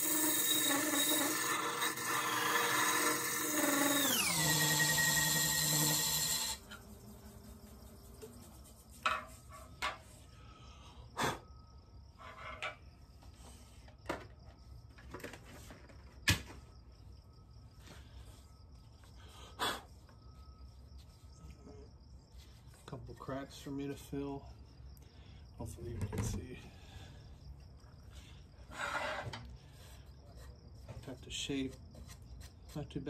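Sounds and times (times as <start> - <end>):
wood lathe motor hum: 0.0 - 6.8
faint high chirring: 0.0 - 15.0, 16.5 - 25.4.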